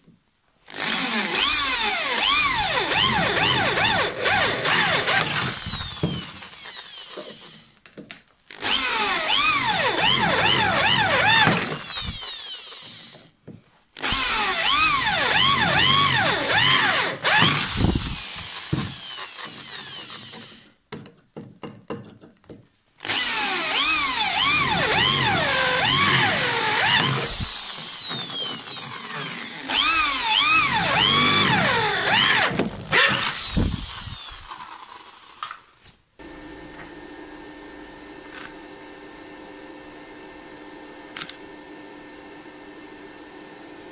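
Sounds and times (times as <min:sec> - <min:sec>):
electric drill boring through steel: 0:00.7 - 0:07.8, 0:08.5 - 0:13.3, 0:14.0 - 0:20.7, 0:23.0 - 0:35.4.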